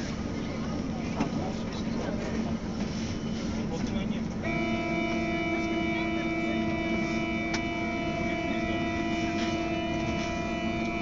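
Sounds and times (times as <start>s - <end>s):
tram electrical hum: 0.0s - 11.0s.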